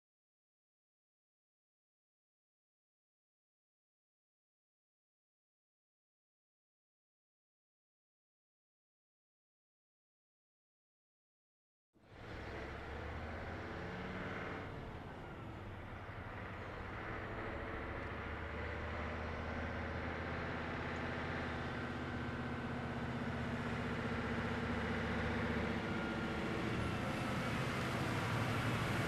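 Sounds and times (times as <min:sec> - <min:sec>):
road noise: 0:12.0 - 0:29.0
vehicle engine approaching: 0:12.0 - 0:29.0.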